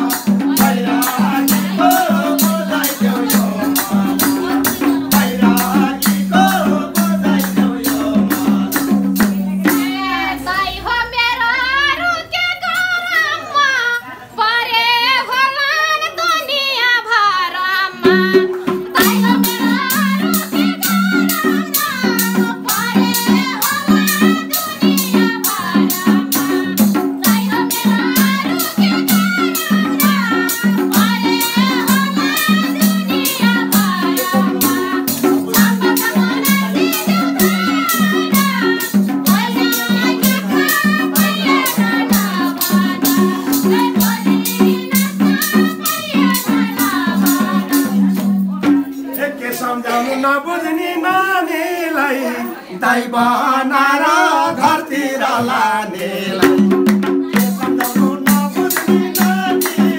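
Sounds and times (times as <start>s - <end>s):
fast drum rhythm: 0.0s - 10.4s, 18.0s - 49.2s, 56.3s - 59.9s
person singing folk song: 0.0s - 59.9s.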